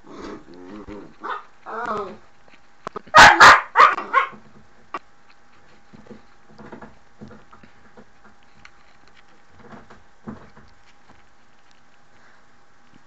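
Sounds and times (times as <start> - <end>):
dog bark: 1.2 - 1.5, 3.1 - 4.4.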